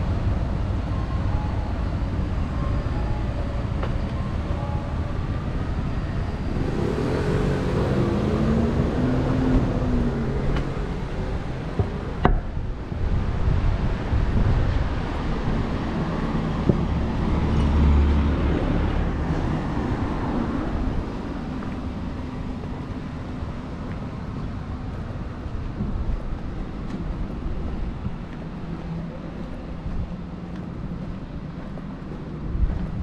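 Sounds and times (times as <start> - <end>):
steady road noise: 0.0 - 33.0
small truck driving past: 5.2 - 12.2.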